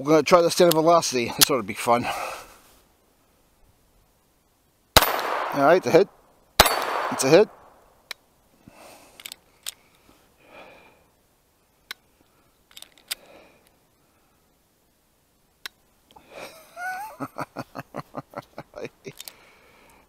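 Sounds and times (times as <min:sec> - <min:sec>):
heavy breaths and sighs: 0:02.0 - 0:02.7, 0:08.6 - 0:11.2, 0:12.2 - 0:14.5
quiet metallic gun clicks: 0:06.6 - 0:08.2, 0:09.2 - 0:10.0, 0:12.7 - 0:13.8, 0:19.1 - 0:19.4.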